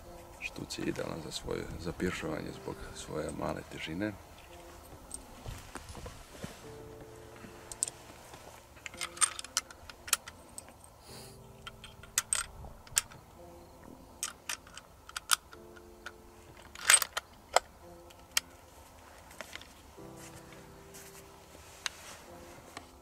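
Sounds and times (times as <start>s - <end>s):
metallic clicks of cartridges loading: 7.7s - 8.0s, 8.8s - 18.6s.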